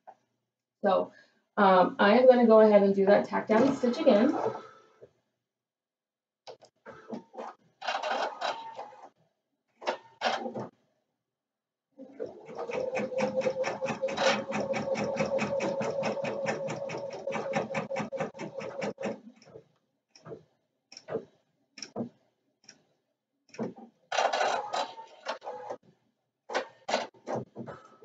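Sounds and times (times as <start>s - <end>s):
embroidery machine rattling: 12.4s - 19.1s.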